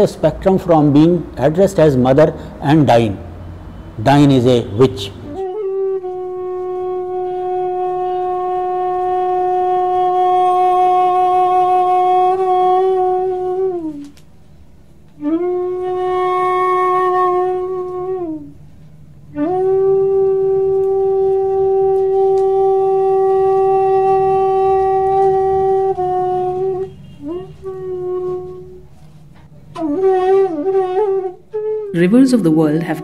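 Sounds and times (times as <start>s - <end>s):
wind instrument long notes: 4.4s - 14.2s, 15.1s - 18.6s, 19.3s - 32.2s.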